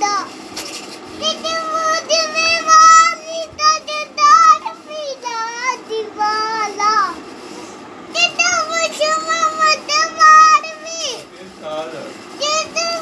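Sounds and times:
small child singing: 0.0s - 0.4s, 1.2s - 7.2s, 8.1s - 11.3s, 12.4s - 13.0s.

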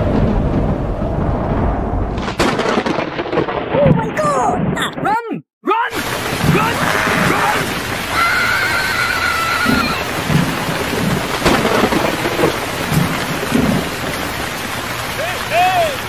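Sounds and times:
low rumble: 0.0s - 3.9s
rain-like hiss: 5.9s - 16.0s.

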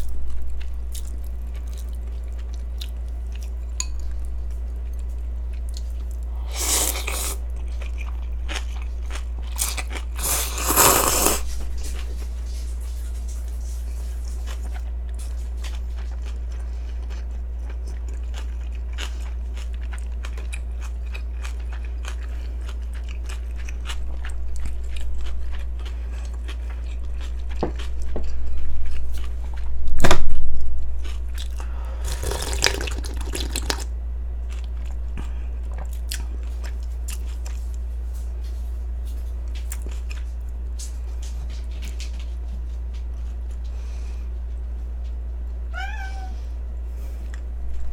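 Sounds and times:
constant low hum: 0.0s - 47.9s
crunchy chewing: 0.1s - 29.8s, 31.0s - 43.8s
slurping noodles: 6.5s - 7.4s, 10.1s - 11.5s, 32.0s - 33.8s.

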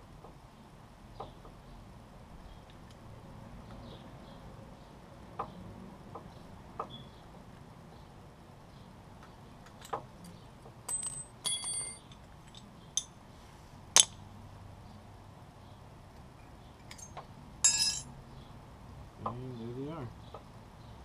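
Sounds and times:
metal parts clinking: 9.7s - 13.1s, 16.8s - 18.1s.

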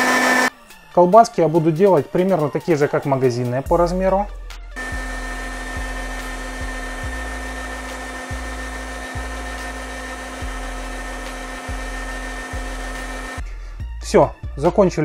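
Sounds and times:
electric meat grinder motor whine: 0.0s - 0.5s, 4.8s - 13.4s.

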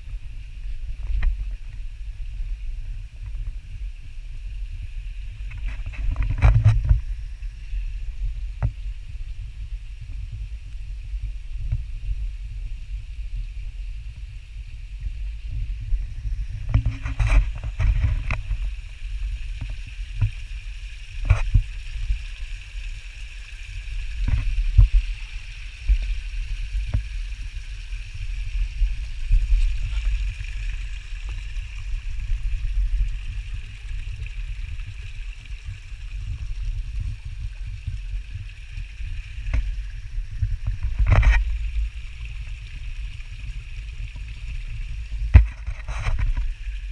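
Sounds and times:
wind rumble on microphone: 0.0s - 46.9s
knocks and scrapes: 5.5s - 7.1s, 16.6s - 18.7s, 40.4s - 41.8s, 45.3s - 46.6s.

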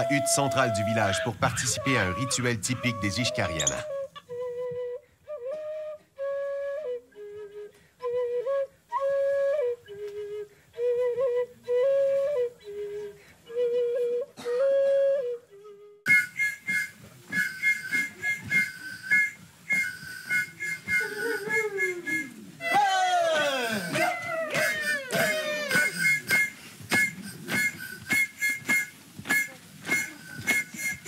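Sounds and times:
wooden flute playing tune: 0.0s - 31.0s
quick high whistling notes: 16.1s - 22.8s, 23.8s - 31.0s.

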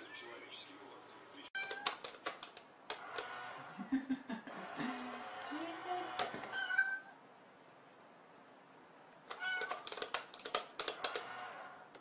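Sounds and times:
toy mechanism clicking rapidly: 1.6s - 3.0s, 9.3s - 11.3s.

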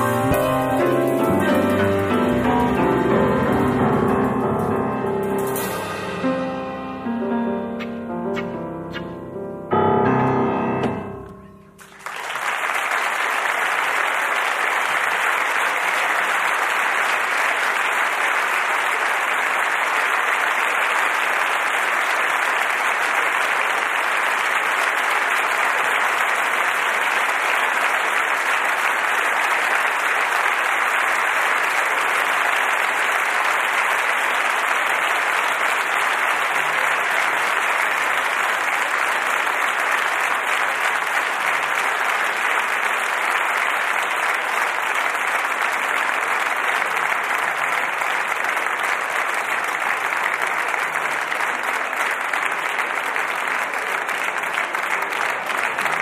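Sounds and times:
audience applause: 0.0s - 4.4s, 11.8s - 56.0s
music notes ringing: 0.0s - 11.9s.

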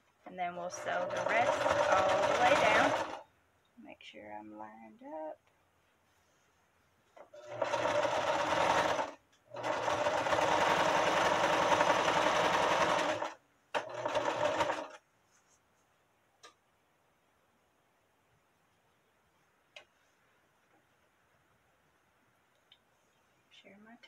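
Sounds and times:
sewing machine stitching: 0.6s - 3.2s, 7.2s - 15.0s.

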